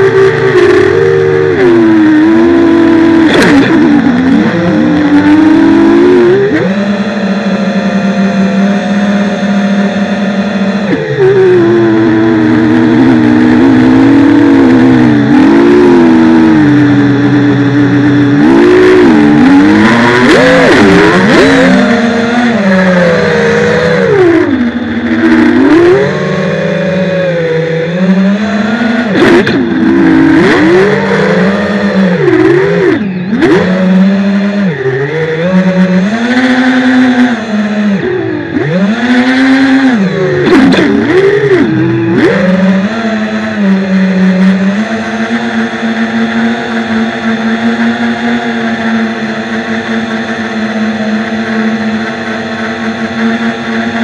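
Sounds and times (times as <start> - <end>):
drone propellers buzzing: 0.0 - 54.0.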